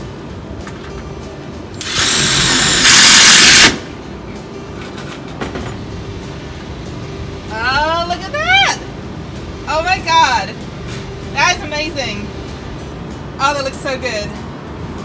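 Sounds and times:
cordless drill driving screw: 0:01.8 - 0:03.8.

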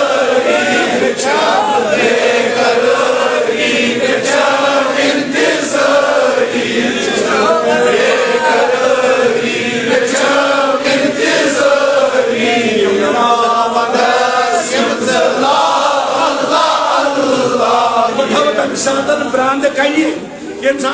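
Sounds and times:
group of men chanting: 0:00.0 - 0:19.1.

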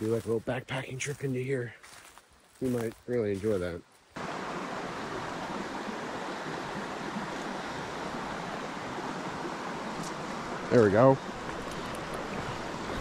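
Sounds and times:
creek water rushing: 0:03.3 - 0:13.0.

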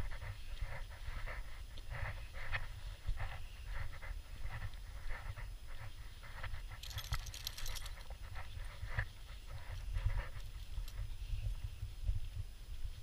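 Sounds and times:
dog panting: 0:00.0 - 0:11.1.

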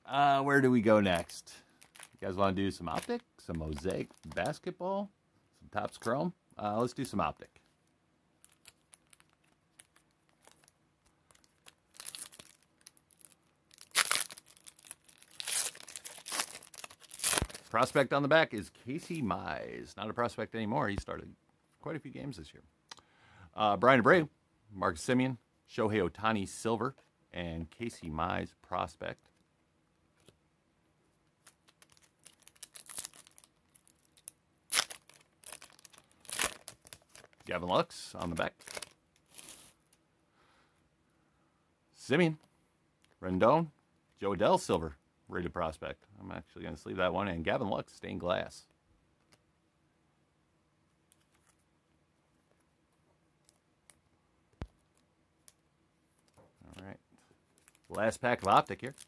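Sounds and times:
foil wrapper crinkling: 0:00.8 - 0:04.6, 0:08.4 - 0:17.9, 0:31.4 - 0:40.0, 0:57.5 - 0:59.0
foil wrapper ripping: 0:11.3 - 0:17.7, 0:31.5 - 0:37.5, 0:38.2 - 0:39.7
foil pack tearing: 0:13.8 - 0:17.6.

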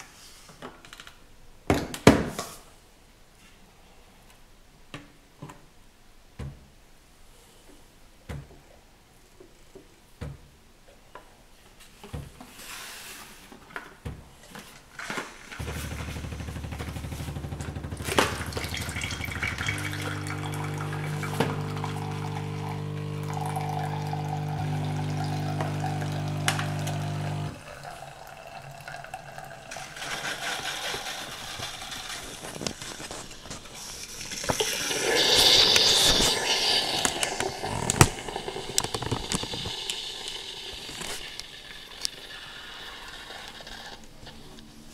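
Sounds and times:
steam hissing and sputtering: 0:15.6 - 0:27.6, 0:29.7 - 0:44.0
pod machine pump buzzing: 0:15.6 - 0:28.4, 0:30.1 - 0:43.8
liquid pouring into glass: 0:17.8 - 0:31.9, 0:34.0 - 0:42.8.

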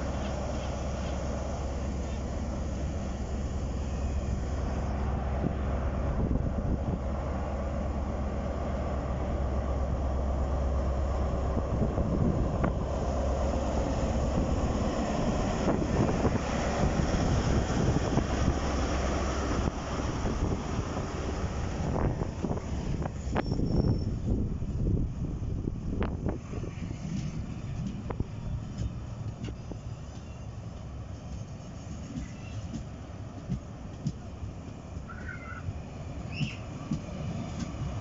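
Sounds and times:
diesel engine drone: 0:00.0 - 0:29.4
train coaches rolling: 0:00.0 - 0:38.0.

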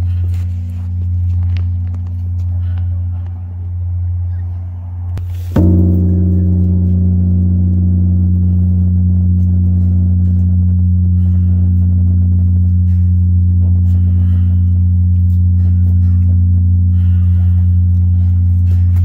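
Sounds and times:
large bell ringing: 0:05.5 - 0:19.0.

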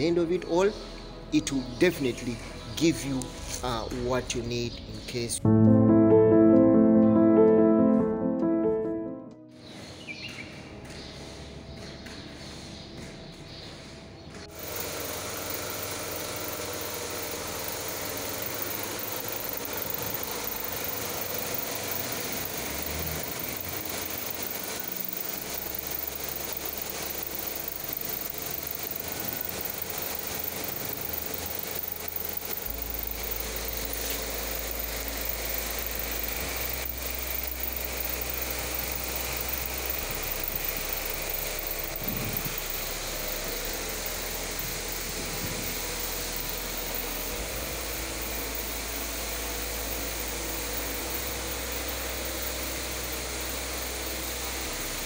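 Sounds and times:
pressure washer motor and pump: 0:14.4 - 0:55.0.

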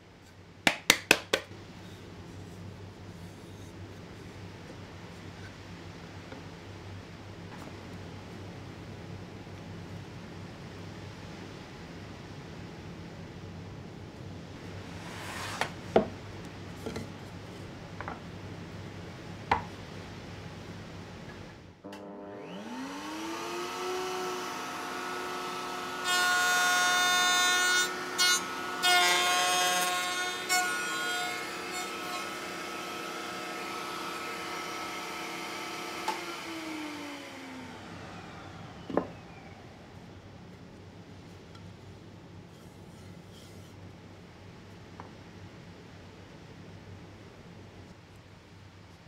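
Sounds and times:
woodworking machine motor whine: 0:21.8 - 0:30.6, 0:31.4 - 0:40.1.

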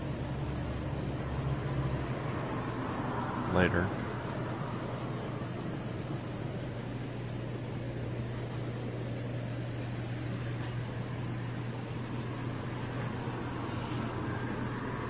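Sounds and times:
water pump hum: 0:00.0 - 0:15.0
aeration hiss: 0:09.3 - 0:15.0.

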